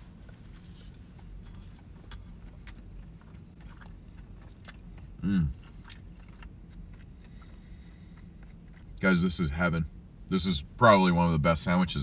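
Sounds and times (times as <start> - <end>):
man chewing: 0.0 - 9.0
steady low hum: 0.0 - 12.0
man humming mm: 5.2 - 5.6.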